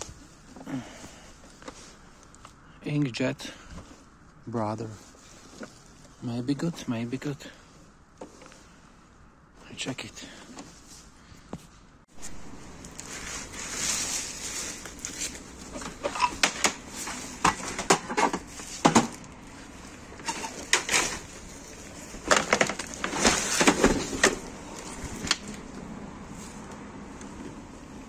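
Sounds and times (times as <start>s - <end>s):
plastic bags rustling: 12.2s - 25.7s
hard plastic items clattering: 12.8s - 25.7s.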